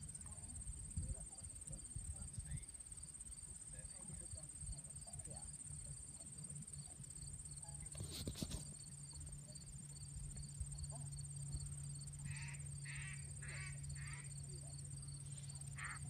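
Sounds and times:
insects buzzing: 0.0 - 16.0
duck call quacks: 12.3 - 14.3, 15.8 - 16.0.

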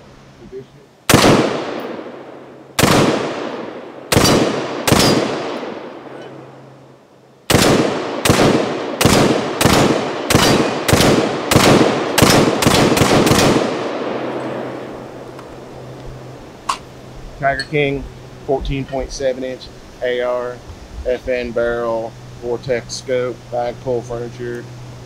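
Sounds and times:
rifle shots with echo: 1.1 - 6.2, 7.5 - 15.2.

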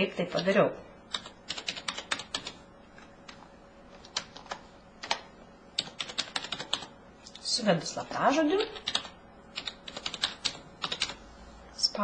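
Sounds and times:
computer keyboard typing: 1.1 - 2.6, 3.2 - 6.9, 8.4 - 11.2.

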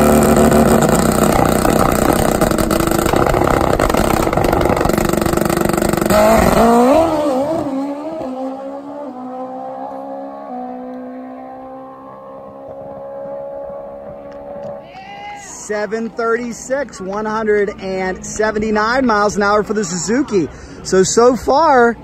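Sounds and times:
drag bike engine revving: 0.0 - 14.6.

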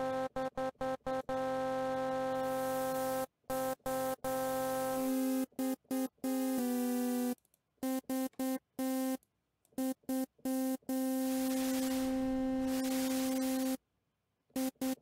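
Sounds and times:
synth staccato stabs: 11.3 - 13.8.

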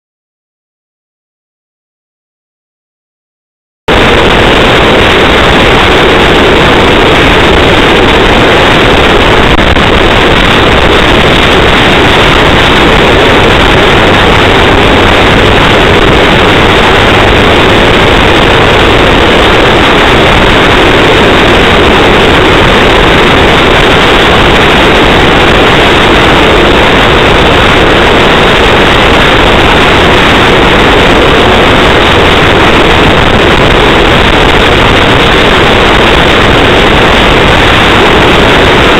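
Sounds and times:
car driving road and wind noise: 3.9 - 38.9.

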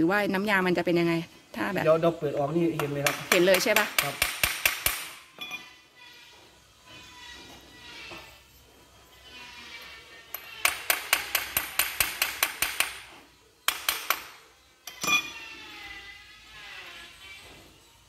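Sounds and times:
hammer tapping on metal: 2.8 - 5.6, 10.4 - 13.0.

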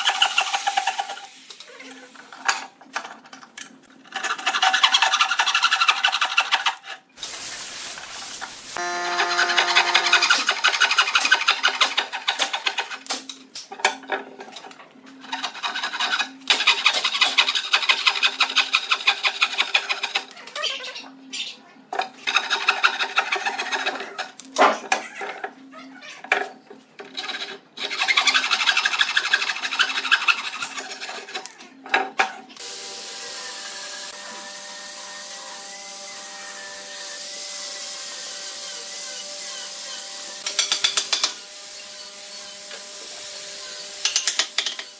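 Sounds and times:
hand saw cutting wood: 4.1 - 7.0, 8.8 - 13.3, 15.2 - 20.3, 22.2 - 24.4, 27.0 - 31.6, 33.2 - 44.9.

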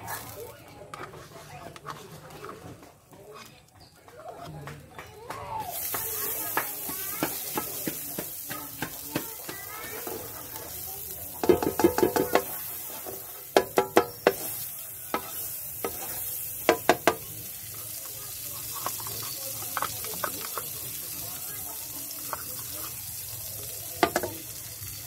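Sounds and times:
butter sizzling in frying pan: 0.0 - 1.0, 5.6 - 25.0
spatula scraping pan: 0.0 - 3.5, 5.8 - 17.2
spatula tapping against pan: 5.8 - 10.2, 11.4 - 12.6, 13.5 - 14.5, 15.1 - 17.2, 24.0 - 24.4.

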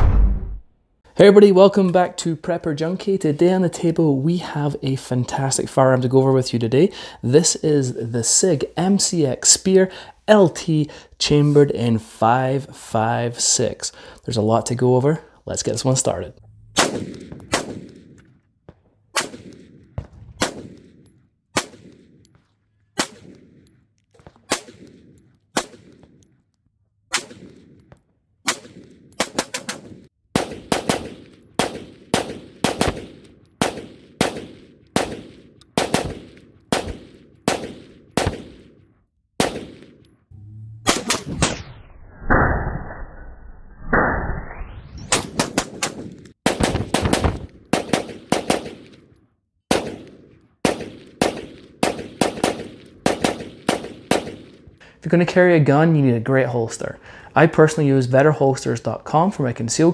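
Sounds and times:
rifle shots echoing: 16.6 - 18.4, 19.1 - 22.3, 23.0 - 23.7, 24.4 - 26.2, 28.5 - 40.1, 45.4 - 49.1, 49.7 - 54.8.

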